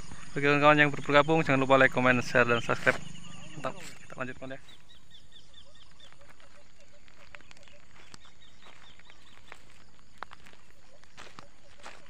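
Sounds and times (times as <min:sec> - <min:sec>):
bird chirping: 0:00.0 - 0:12.0
steady outdoor hiss: 0:00.0 - 0:12.0.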